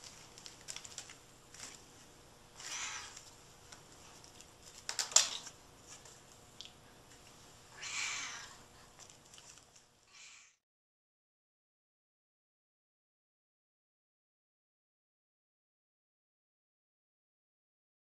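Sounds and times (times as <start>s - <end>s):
kitten meowing faintly: 7.8s - 8.6s.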